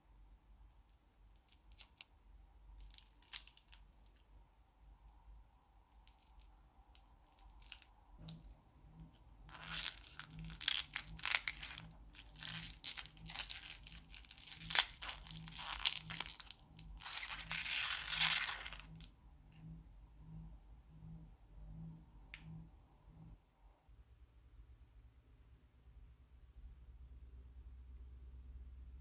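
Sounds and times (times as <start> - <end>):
plastic wrapper crinkling and tearing: 1.4 - 2.1, 2.8 - 4.2, 6.0 - 7.9, 9.5 - 19.1.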